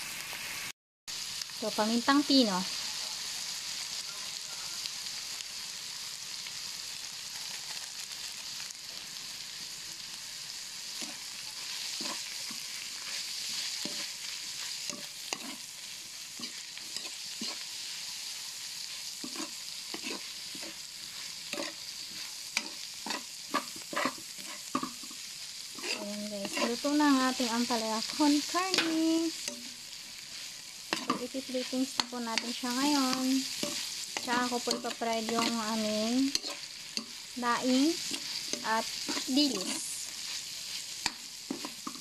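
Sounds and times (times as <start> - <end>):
food sizzling in a wok: 0.0 - 42.0
metal spatula scraping pan: 11.0 - 15.7, 19.0 - 27.4, 28.1 - 42.0.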